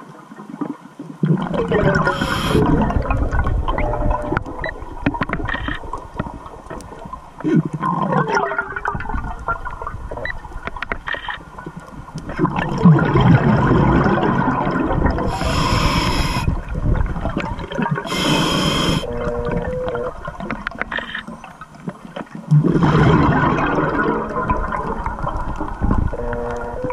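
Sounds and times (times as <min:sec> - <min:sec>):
exhaled bubbles gurgling: 0:00.0 - 0:10.8, 0:11.4 - 0:26.9
regulator hissing inhalations: 0:02.1 - 0:02.6, 0:15.3 - 0:16.5, 0:18.1 - 0:19.1.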